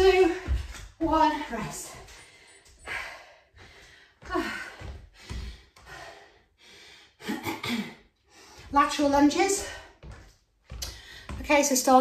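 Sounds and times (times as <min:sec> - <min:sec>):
woman breathing hard and gasping: 0:01.9 - 0:08.7.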